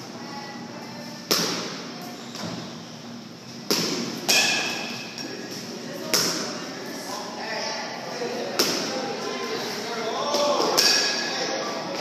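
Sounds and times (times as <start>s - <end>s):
baseballs smacking target: 3.7s - 5.1s.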